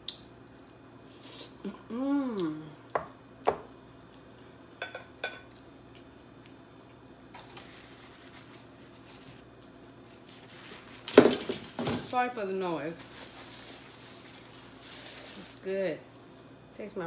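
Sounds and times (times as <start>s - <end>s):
soft chewing: 5.5s - 7.9s.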